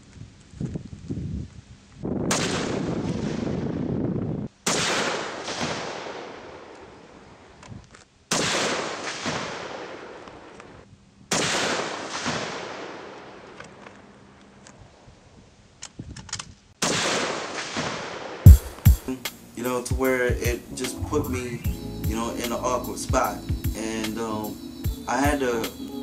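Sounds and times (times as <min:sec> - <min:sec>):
gunshots with rolling echo: 0:02.3 - 0:04.0, 0:04.6 - 0:06.8, 0:08.3 - 0:10.5, 0:11.3 - 0:13.6, 0:16.8 - 0:19.0.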